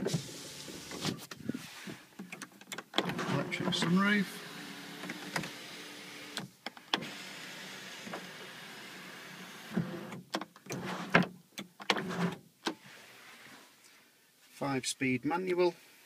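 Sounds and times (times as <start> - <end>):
irregular clicks and knocks: 2.2 - 3.2.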